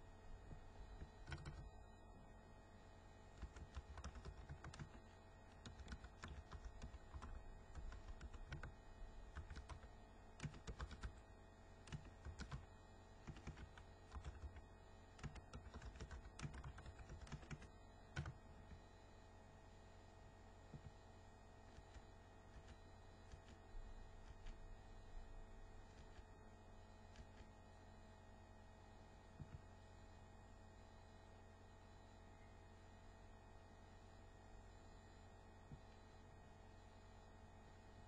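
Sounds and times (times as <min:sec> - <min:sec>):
faint keyboard typing: 0:00.4 - 0:01.8, 0:03.3 - 0:18.9, 0:20.7 - 0:21.0, 0:21.6 - 0:26.3, 0:27.0 - 0:27.7.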